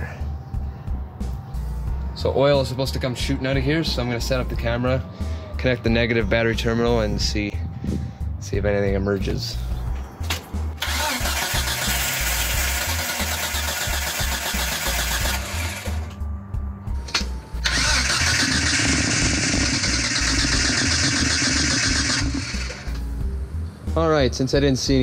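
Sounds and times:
car engine cranking on starter: 10.8 - 16.2, 17.1 - 23.1.

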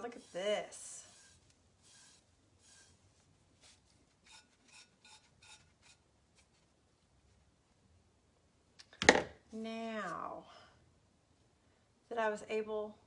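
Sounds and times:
paintbrush swishing on surface: 0.0 - 6.6.

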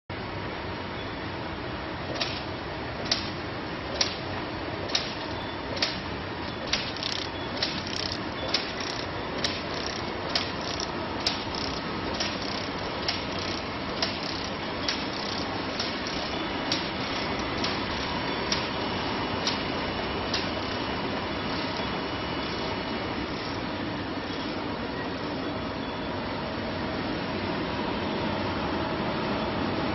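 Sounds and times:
sharp machine clicks: 2.1 - 18.8, 19.4 - 19.7, 20.3 - 20.9
labeling machine whirring: 4.8 - 24.5.

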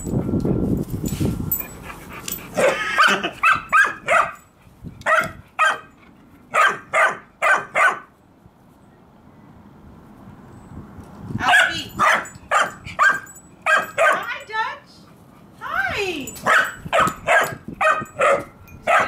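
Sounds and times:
dog barking: 2.6 - 4.4, 5.1 - 5.9, 6.5 - 8.1, 11.4 - 14.3, 16.4 - 19.0.

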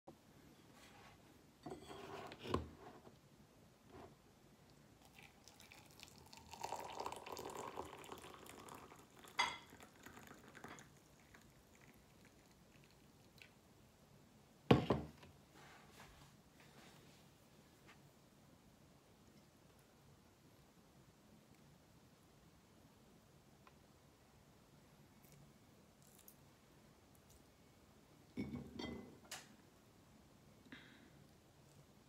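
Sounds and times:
liquid pouring into a glass mug: 5.0 - 13.6
kettle set down on table: 14.7 - 15.2.

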